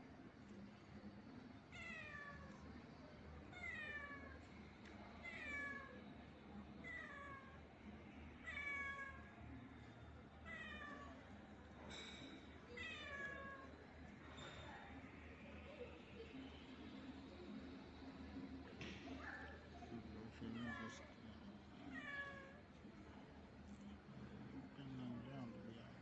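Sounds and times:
cat meowing: 0:08.4 - 0:09.3, 0:10.4 - 0:11.2.

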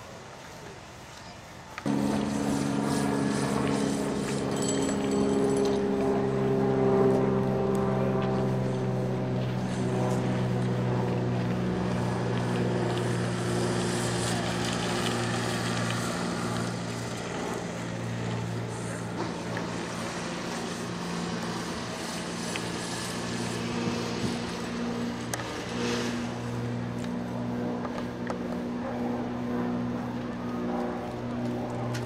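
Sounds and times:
low mechanical drone: 0:00.0 - 0:32.0
outdoor background noise: 0:00.0 - 0:32.0.

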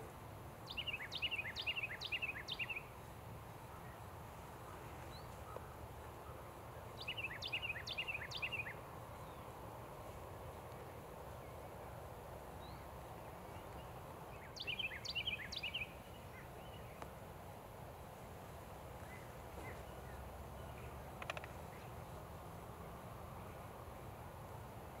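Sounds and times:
small songbird singing: 0:00.6 - 0:03.0, 0:03.7 - 0:09.6, 0:12.6 - 0:17.2, 0:19.0 - 0:22.0.

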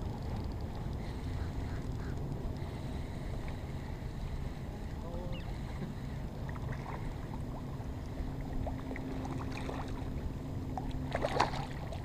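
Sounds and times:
water lapping: 0:00.2 - 0:12.0
fish splashing at the surface: 0:11.1 - 0:12.0.

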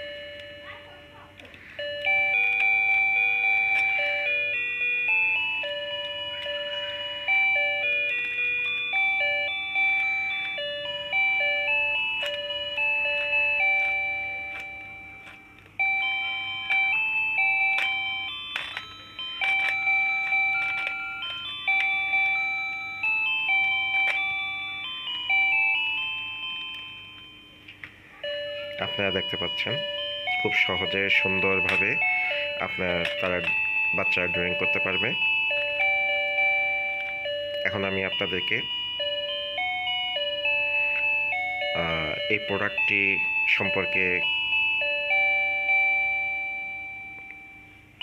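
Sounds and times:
electronic chiming beep melody: 0:01.8 - 0:27.6, 0:28.2 - 0:47.6.

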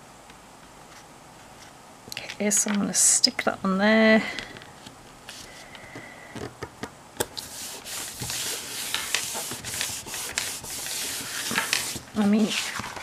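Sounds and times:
hands rubbing paper: 0:07.4 - 0:13.0
paper taps and crinkles: 0:08.0 - 0:13.0.

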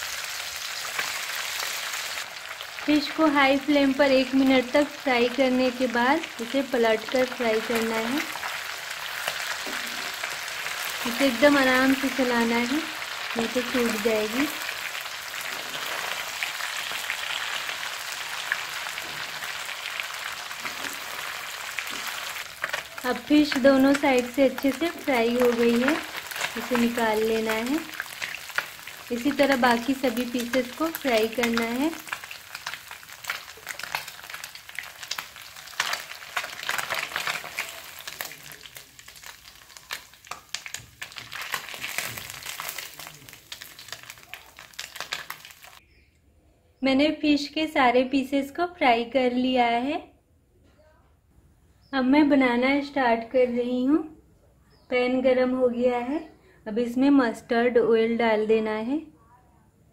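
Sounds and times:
fish sizzling in hot oil: 0:00.0 - 0:45.8.

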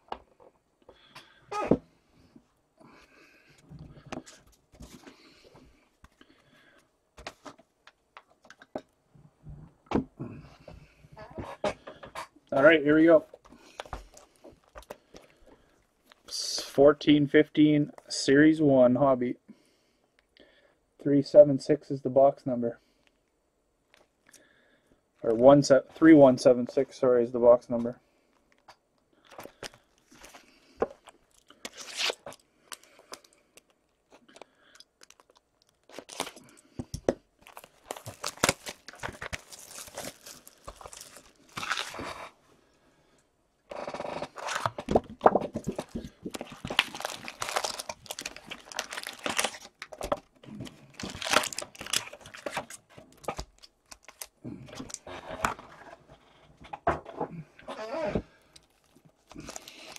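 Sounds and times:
foil card packs rustling: 0:29.3 - 0:42.3, 0:44.2 - 0:55.8, 0:58.6 - 0:59.9
plastic wrapping tearing and crinkling: 0:31.0 - 0:33.7, 0:35.0 - 0:36.6, 0:37.4 - 0:42.2, 0:44.4 - 0:55.6, 0:58.6 - 0:59.9.

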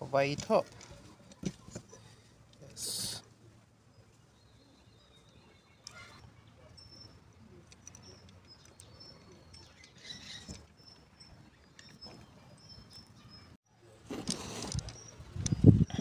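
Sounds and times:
high bird chirps: 0:07.9 - 0:13.6.

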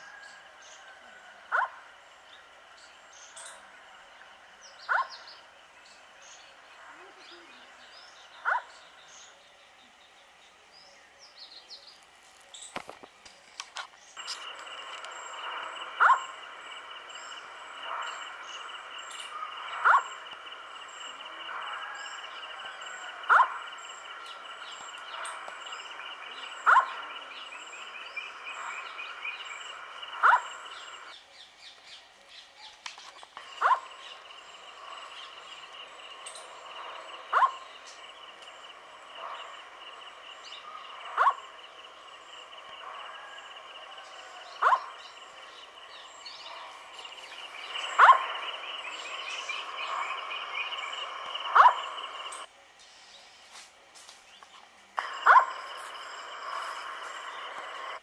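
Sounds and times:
owl hooting: 0:14.2 - 0:31.1, 0:33.4 - 0:52.5, 0:55.0 - 0:58.0.

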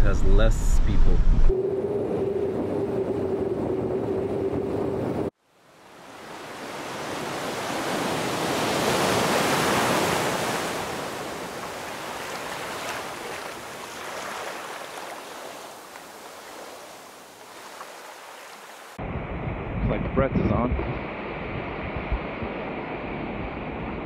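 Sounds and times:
ocean wave breaking: 0:01.5 - 0:19.5.

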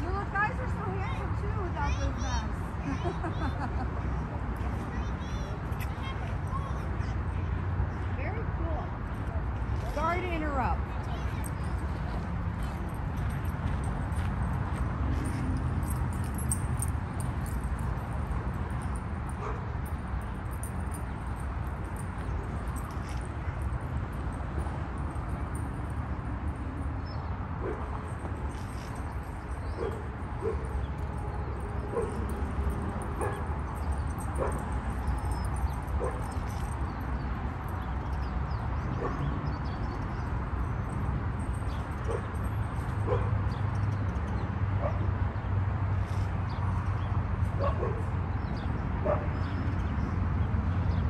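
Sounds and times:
dog barking: 0:39.0 - 0:39.3, 0:47.6 - 0:48.1.

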